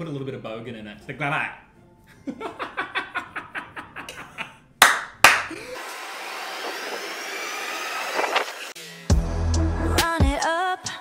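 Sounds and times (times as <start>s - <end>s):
hands clapping: 4.8s - 5.5s
loud sharp claps: 4.8s - 5.5s.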